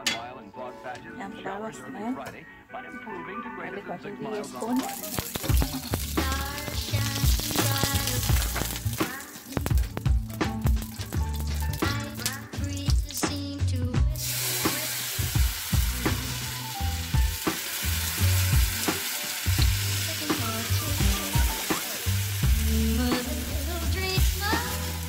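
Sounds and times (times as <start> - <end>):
background music with a beat: 4.3 - 25.0
batter sizzling on a griddle: 4.8 - 12.4, 14.2 - 25.0.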